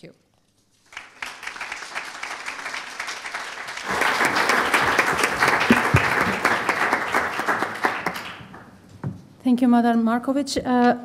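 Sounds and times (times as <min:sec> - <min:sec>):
audience applauding: 0:00.8 - 0:08.8.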